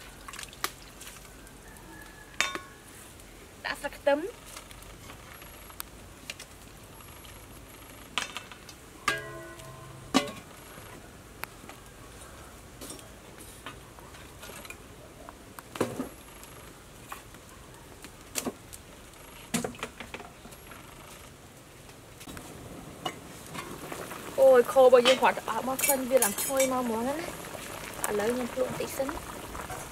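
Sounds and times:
wood fire crackling: 0.0s - 29.9s
metal lid clanking on pot: 9.1s - 10.5s.

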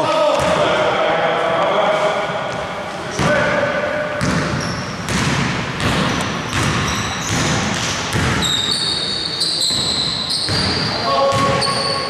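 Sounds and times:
sneakers squeaking: 4.0s - 12.0s
basketball dribbling on wood: 5.1s - 8.4s.

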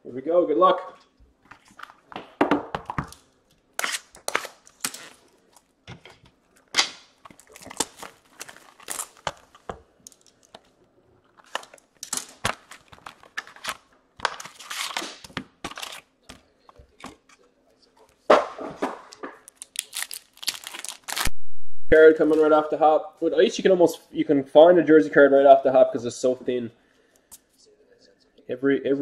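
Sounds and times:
packaging tearing and crinkling: 3.8s - 5.7s, 6.8s - 9.7s, 11.4s - 16.1s, 19.4s - 21.4s.

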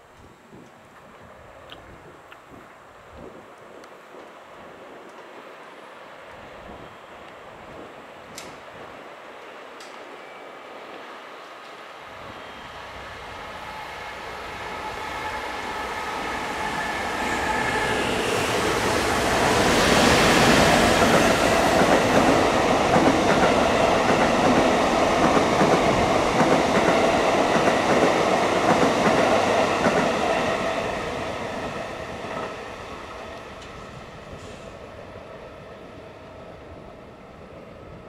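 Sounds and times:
train wheels rumbling on rails: 11.6s - 38.0s.

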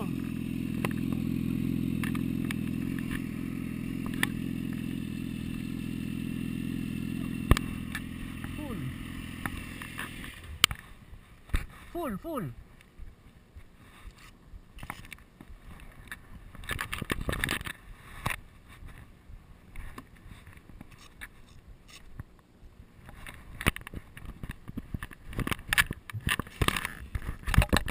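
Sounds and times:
camera handling noise: 14.1s - 18.4s.

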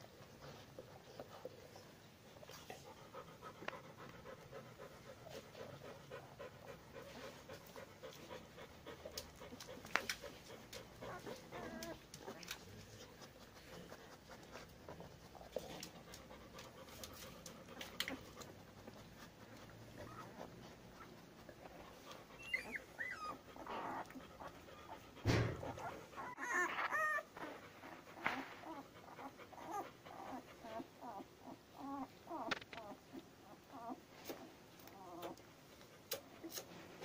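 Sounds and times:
dog panting: 0.1s - 32.9s
puppies squeaking and whining: 11.0s - 13.1s, 17.8s - 34.0s
thump: 25.2s - 26.0s.

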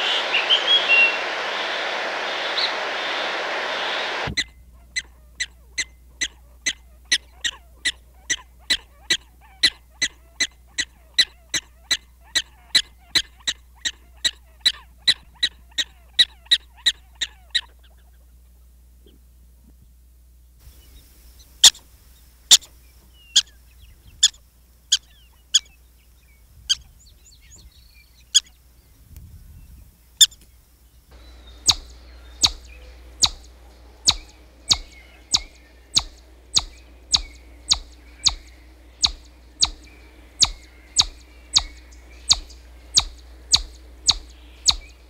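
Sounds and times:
small animal chirping: 4.4s - 18.3s, 22.5s - 23.6s, 24.2s - 25.8s, 31.2s - 45.0s.

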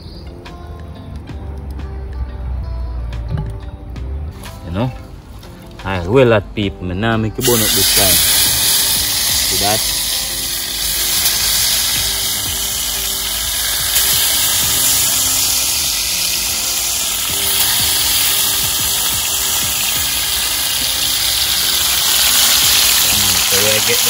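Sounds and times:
fish frying in hot oil: 7.4s - 24.0s.

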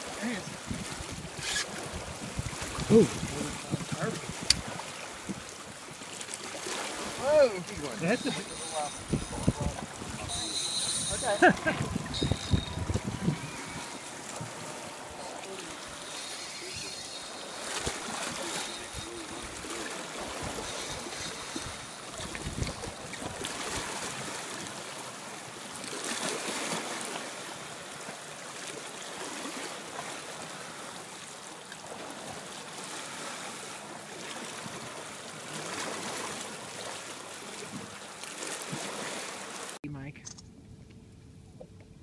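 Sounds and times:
water splashing and lapping: 0.0s - 40.4s
wind buffeting microphone: 0.6s - 5.5s, 7.7s - 16.0s, 17.8s - 24.3s.

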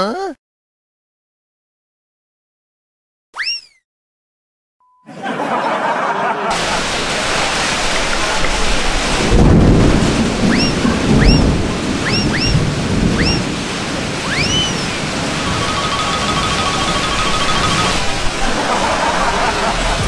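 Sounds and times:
short rising falling chirps: 3.4s - 3.8s, 10.5s - 12.6s, 14.3s - 14.9s
heavy rain pouring: 5.8s - 20.0s
thunder rumbles: 6.5s - 20.0s
fast-pulsing tone: 15.5s - 18.0s.

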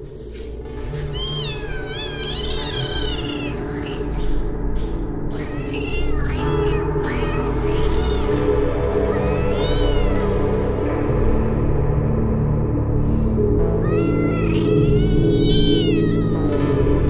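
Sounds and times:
background music: 0.0s - 17.0s
kitten meowing: 0.9s - 4.4s, 5.3s - 8.4s, 9.0s - 10.5s, 13.9s - 16.6s.

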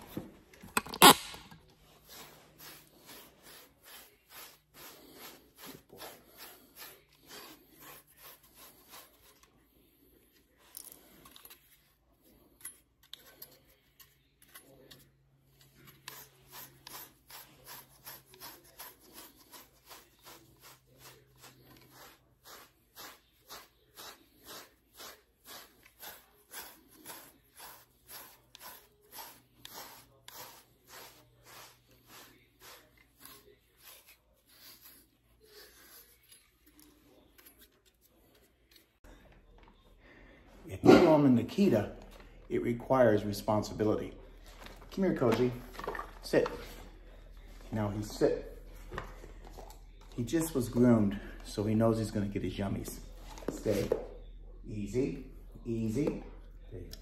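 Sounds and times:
brush rasping through dog fur: 1.8s - 9.5s, 15.8s - 36.3s.

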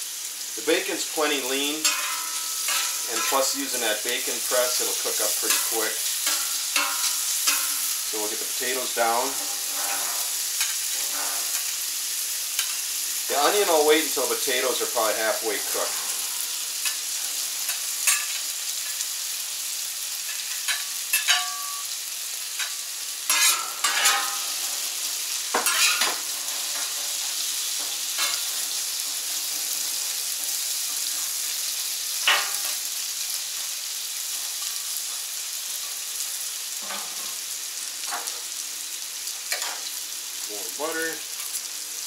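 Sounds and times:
potatoes sizzling on a griddle: 0.0s - 42.0s
metal utensil scraping griddle: 0.7s - 11.9s, 12.6s - 18.4s, 22.6s - 32.9s, 36.8s - 37.4s.

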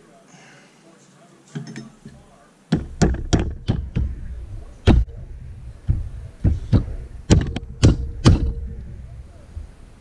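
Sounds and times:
low hum: 3.3s - 10.0s.

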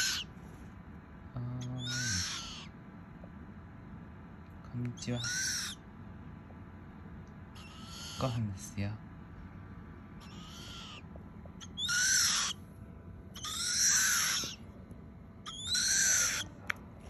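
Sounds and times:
owl chicks hissing calls: 0.0s - 0.4s, 1.6s - 2.8s, 5.0s - 5.8s, 7.5s - 8.4s, 10.2s - 12.6s, 13.4s - 14.6s, 15.4s - 16.5s.

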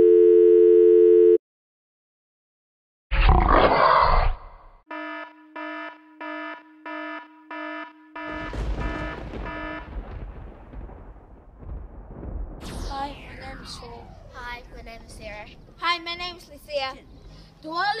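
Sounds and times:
electronic beeping tone: 4.9s - 9.9s
loud rushing burst: 8.3s - 11.6s, 12.2s - 16.7s
low rumble: 8.3s - 17.6s.

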